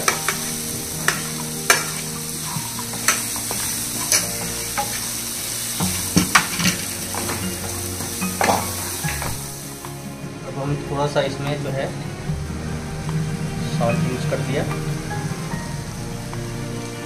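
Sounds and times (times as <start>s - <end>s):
spatula scraping a pan: 0.0s - 9.6s
vegetables sizzling in oil: 0.0s - 10.5s, 11.5s - 17.0s.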